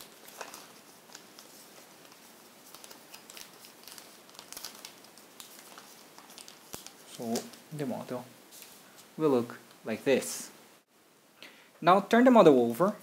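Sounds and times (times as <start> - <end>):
paper creases crackling: 0.0 - 8.0
paper rustling and crinkling: 0.0 - 9.2.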